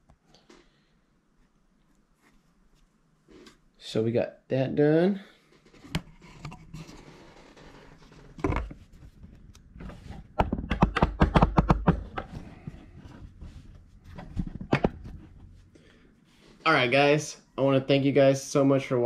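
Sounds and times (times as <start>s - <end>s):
sharp taps and knocks: 10.4s - 12.4s.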